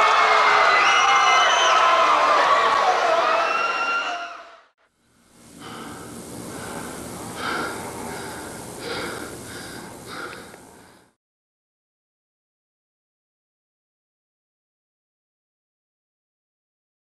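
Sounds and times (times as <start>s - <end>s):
man breathing hard: 5.4s - 11.2s.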